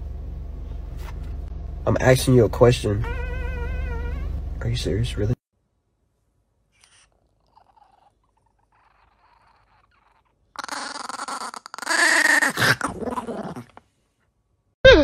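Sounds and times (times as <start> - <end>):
small dog growling: 3.0 - 4.4, 6.8 - 13.8.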